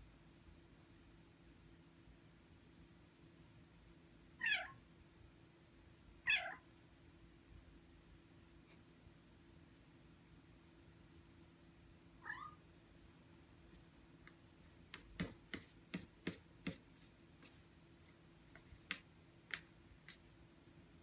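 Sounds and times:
cat meowing: 4.4 - 4.8, 6.2 - 6.6, 12.2 - 12.6
paws tapping on a monitor screen: 13.8 - 17.6, 18.5 - 20.3.

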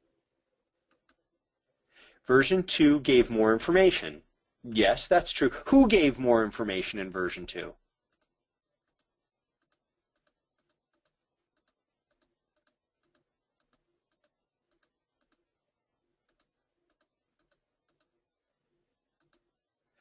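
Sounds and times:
faint keyboard typing: 0.8 - 1.4, 8.0 - 18.3, 19.0 - 19.6.

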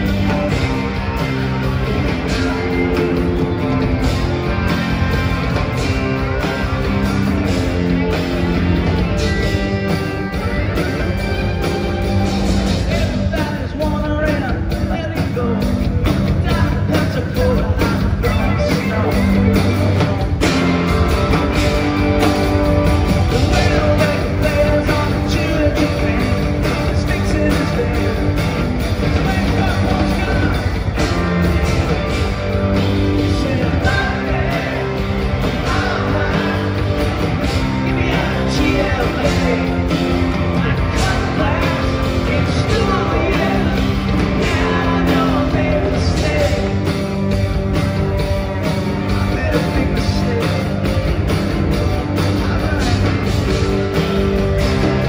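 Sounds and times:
live rock band: 0.0 - 55.0
man singing lead vocal: 12.7 - 19.6, 23.3 - 31.0, 33.1 - 47.1, 49.1 - 51.1, 52.2 - 55.0.

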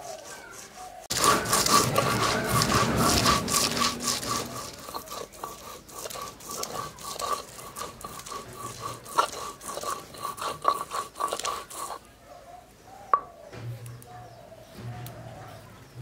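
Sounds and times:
stone grinding spices: 0.0 - 12.0.

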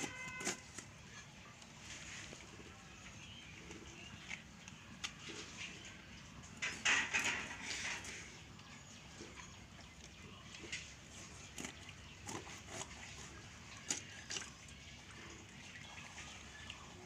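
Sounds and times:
wet clicks of fish being cut: 13.8 - 14.5.

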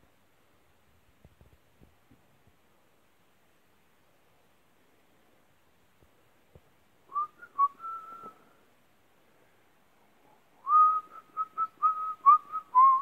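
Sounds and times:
person whistling a tune: 7.1 - 8.5, 10.6 - 13.0.

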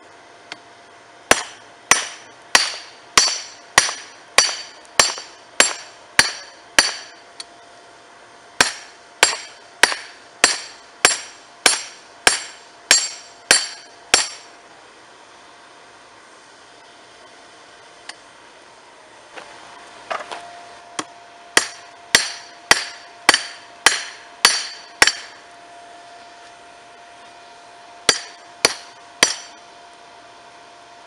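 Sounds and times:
hammer striking metal on anvil: 1.3 - 7.2, 8.6 - 14.5, 21.6 - 25.4, 28.1 - 29.6.

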